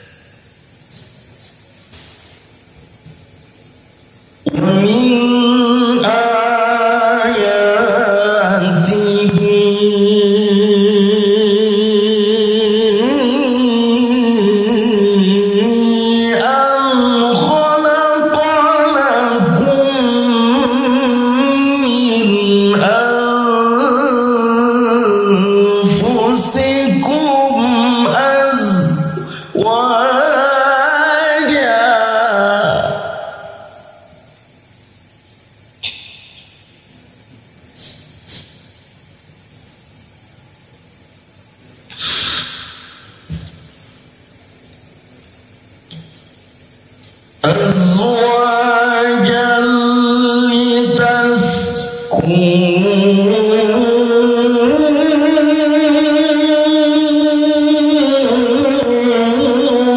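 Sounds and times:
man reciting melodically into microphone: 4.4 - 33.9, 47.4 - 59.9
man breathing into microphone: 37.7 - 38.7, 41.9 - 43.6.

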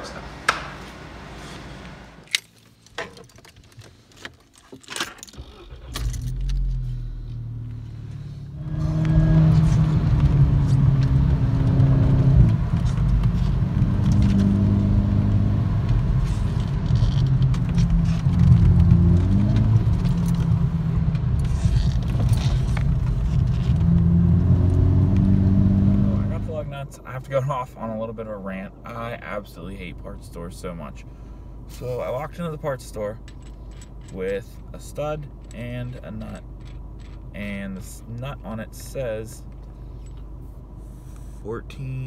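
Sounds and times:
car engine and road noise: 0.0 - 42.0
low rumble: 5.7 - 27.0.

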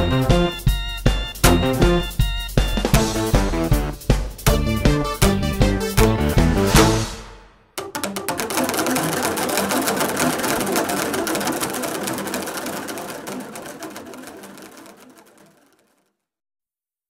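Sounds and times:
plastic percussion tubes clattering: 7.8 - 16.1.

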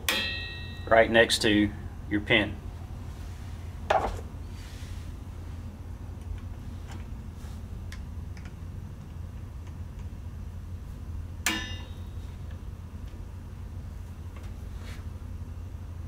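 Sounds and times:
steady low hum: 0.0 - 16.0
sharp metallic clink: 0.1 - 1.0, 11.5 - 12.1.

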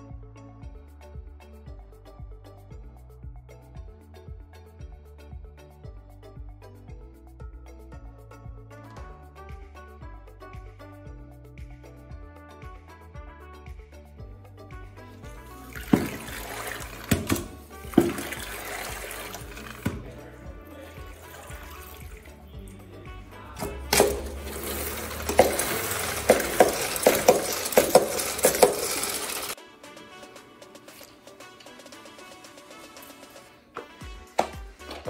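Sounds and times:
background music: 0.0 - 35.0
mop sloshing in bucket water: 15.2 - 22.9, 23.6 - 29.6
mop spin basket whirring: 15.3 - 20.4, 23.6 - 33.6
mop knocking against bucket: 15.5 - 20.3, 23.6 - 29.6, 33.8 - 35.0
mop handle clacking: 23.6 - 29.6.

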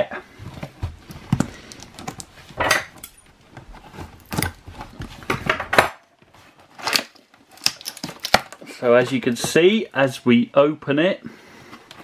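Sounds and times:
cardboard seal ripping: 6.5 - 8.8.

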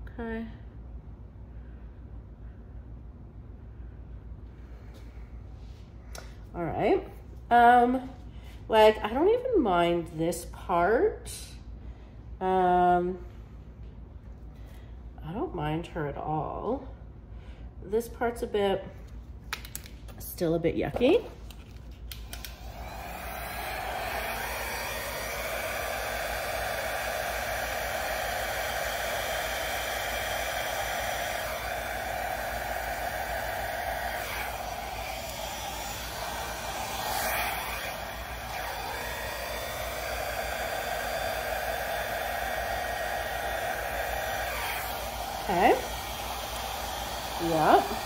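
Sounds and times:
hair dryer blowing air: 22.1 - 48.0.

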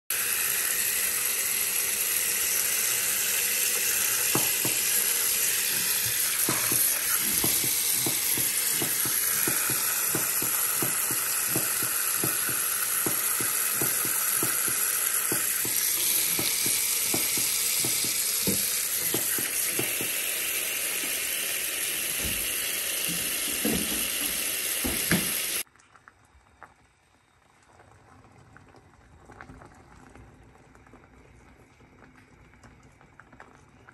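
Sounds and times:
tap water running into a sink: 0.1 - 25.7
saucepan bubbling: 0.1 - 33.9.

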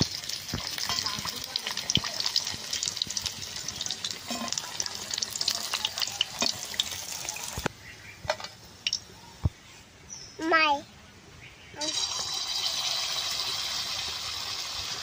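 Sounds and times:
hot oil sizzling and crackling: 0.0 - 7.7, 8.8 - 9.1, 11.8 - 15.0.

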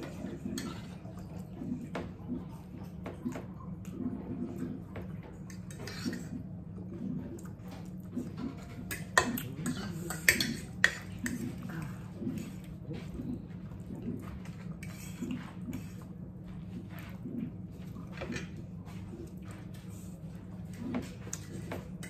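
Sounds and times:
forks scraping dinner plates: 0.0 - 1.1, 5.5 - 6.4, 8.2 - 13.1, 14.2 - 16.1.

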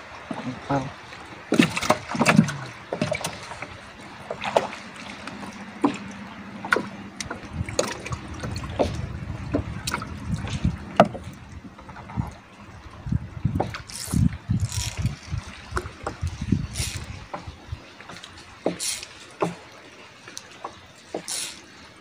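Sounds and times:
water washing against hull: 0.0 - 22.0
knocks in wooden boat: 1.5 - 3.7, 4.3 - 12.3, 13.5 - 13.8, 15.7 - 19.7.

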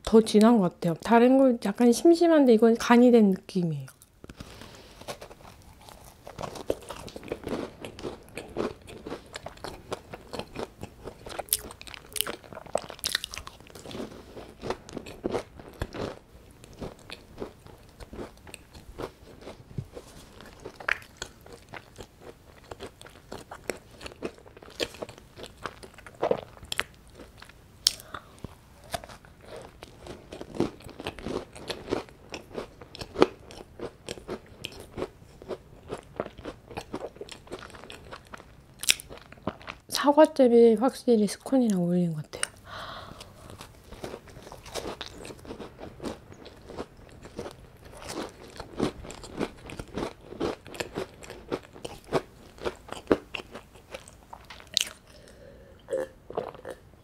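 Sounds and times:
biting and chewing scone: 3.9 - 39.8, 42.4 - 55.4
soft mouth sounds: 27.9 - 29.1, 54.8 - 56.8.

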